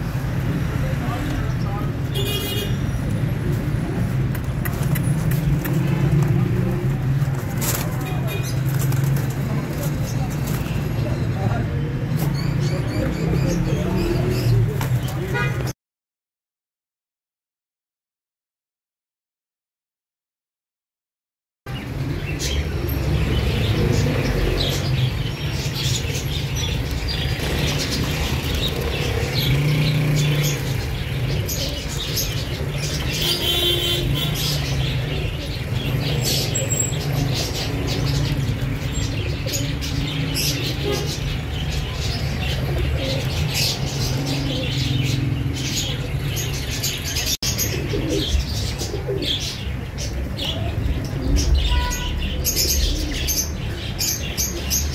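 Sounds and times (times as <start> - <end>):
small birds chirping: 21.7 - 54.9
pigeons cooing: 25.7 - 54.9.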